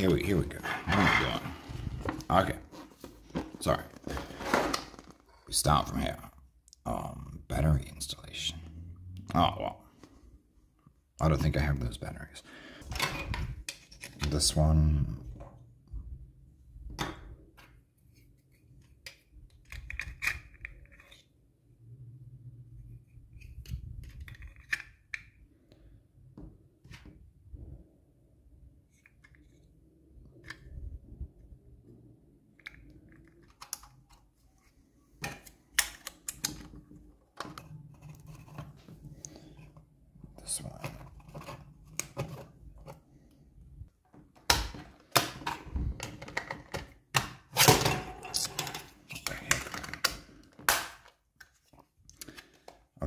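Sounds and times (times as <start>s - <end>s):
plastic parts clicking and knocking: 18.7s - 21.3s, 23.4s - 25.4s, 32.5s - 34.3s, 35.2s - 39.8s, 44.0s - 52.9s
plastic parts snapping: 35.2s - 36.7s.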